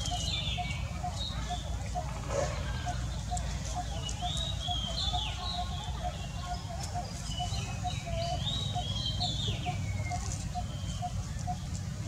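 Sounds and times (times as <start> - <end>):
steady low rumble: 0.0 - 5.0.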